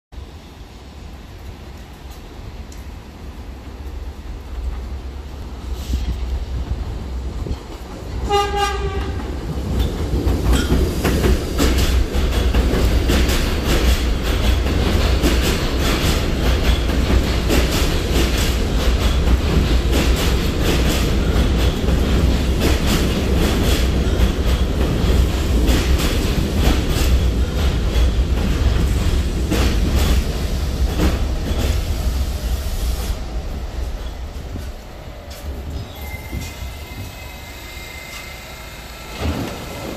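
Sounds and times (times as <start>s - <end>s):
train wheels rumbling: 0.2s - 39.9s
wheels clacking over rail joints: 7.4s - 32.0s
train horn blast: 8.2s - 9.3s.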